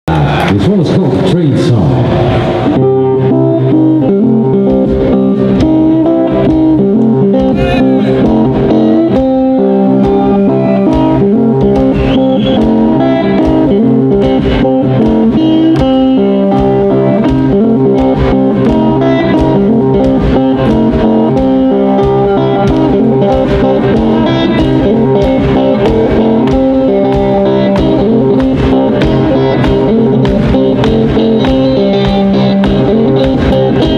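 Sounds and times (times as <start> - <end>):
blues band playing: 0.1 - 33.9
harmonica: 11.8 - 13.5.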